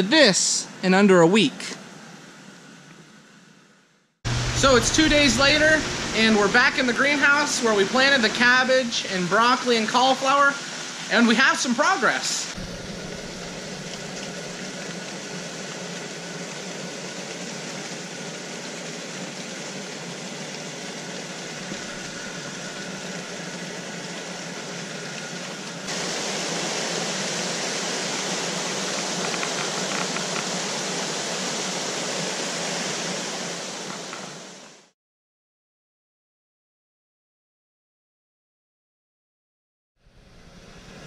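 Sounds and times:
fans blowing air: 4.3 - 8.9.

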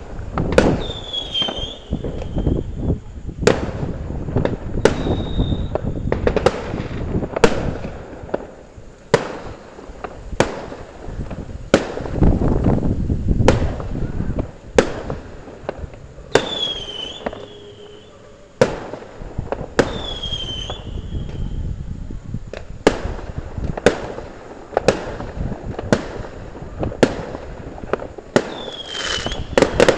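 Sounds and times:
fireworks bangs: 0.0 - 29.9
rumbling of fireworks: 0.0 - 29.9
falling whistles: 0.7 - 3.0, 4.7 - 6.2, 16.2 - 18.6, 19.8 - 21.8, 28.4 - 29.9.

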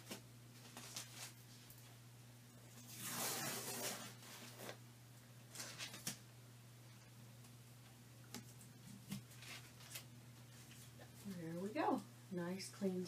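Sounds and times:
tape ripping off canvas: 2.8 - 4.8.

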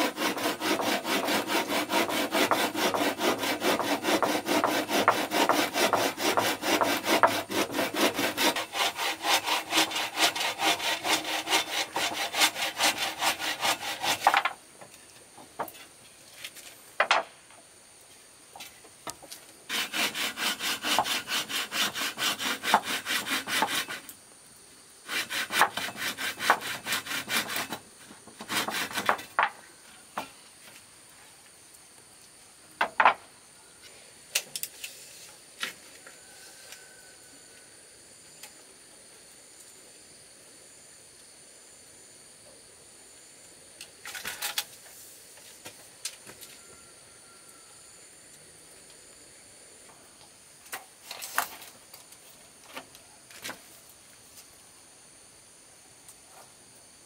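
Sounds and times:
hand saw cutting wood: 0.0 - 14.6, 19.7 - 24.1, 25.1 - 27.8, 28.4 - 29.4.

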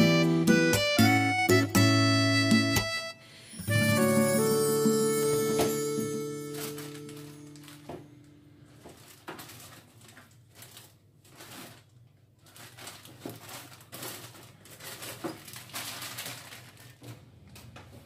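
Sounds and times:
plastic bags crinkling: 3.6 - 18.0.

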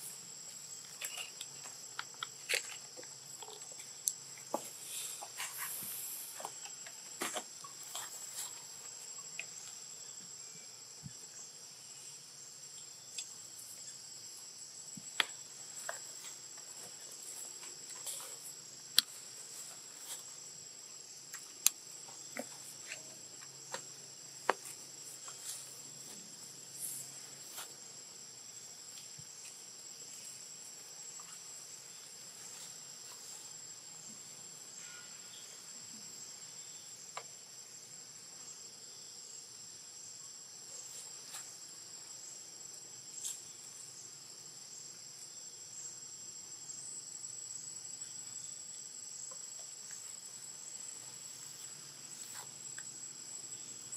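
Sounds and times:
insects buzzing: 0.0 - 53.9.

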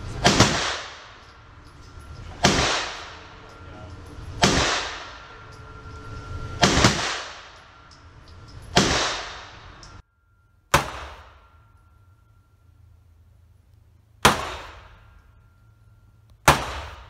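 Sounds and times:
pistol shots reverberating: 0.2 - 1.3, 2.4 - 3.2, 6.6 - 7.6, 8.8 - 9.6, 10.7 - 11.5, 14.2 - 15.1, 16.4 - 17.0.

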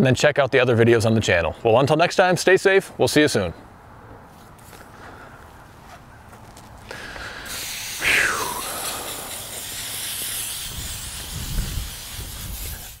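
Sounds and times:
hissing whoosh: 7.3 - 13.0.

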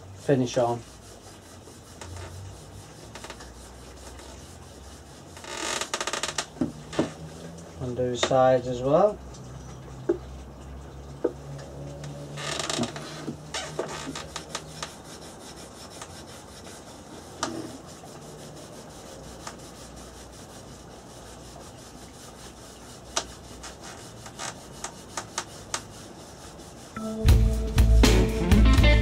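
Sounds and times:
cloth scrubbing on wood: 0.0 - 9.2, 11.2 - 27.0.

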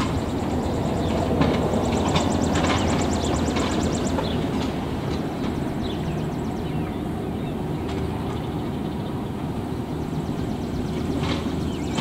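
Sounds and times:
low outdoor rumble: 0.0 - 12.0
bird chirps: 5.4 - 9.3, 9.9 - 12.0.

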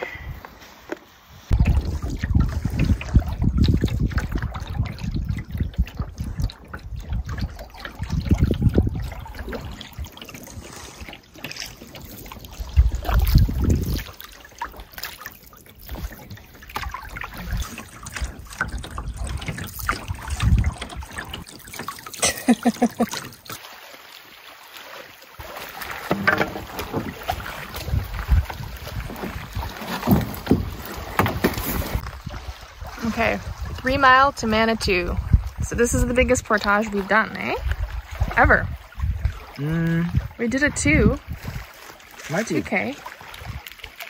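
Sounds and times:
water trickling and splashing: 0.0 - 44.0
wind on microphone: 1.3 - 10.7, 12.5 - 14.2, 15.8 - 21.5, 26.6 - 41.8, 43.3 - 43.7.

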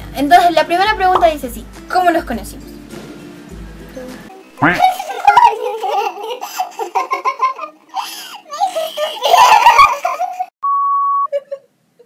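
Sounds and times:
women laughing and giggling: 4.8 - 10.5, 11.3 - 11.7.

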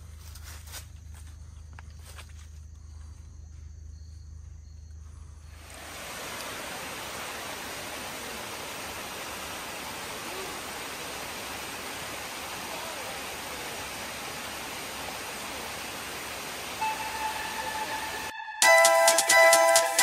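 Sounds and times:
waterfall rushing over rocks: 5.6 - 18.3.

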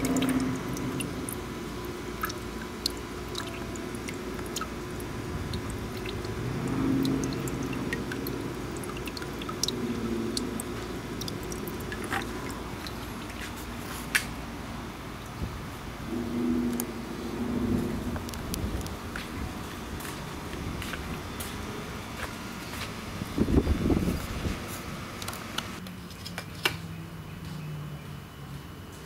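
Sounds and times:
water dripping in plastic bucket: 0.0 - 13.5
steady hum: 0.0 - 29.0.

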